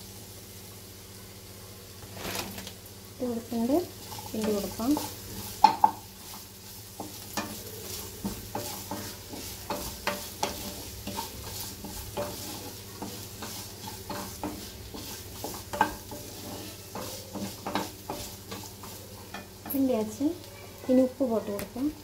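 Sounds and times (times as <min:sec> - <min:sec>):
oil sizzling: 0:00.0 - 0:22.0
wooden spatula scraping a pan: 0:02.0 - 0:02.7, 0:03.6 - 0:21.2.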